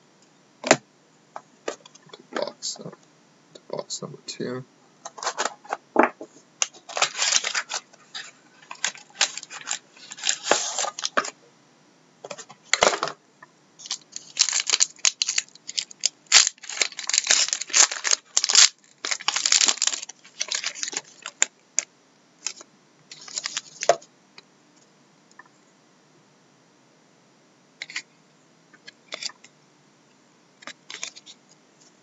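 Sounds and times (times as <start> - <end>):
foil pack crinkling: 6.6 - 11.3, 13.8 - 24.0
plastic wrap crinkling and tearing: 6.6 - 11.3, 13.8 - 21.5, 22.4 - 24.0.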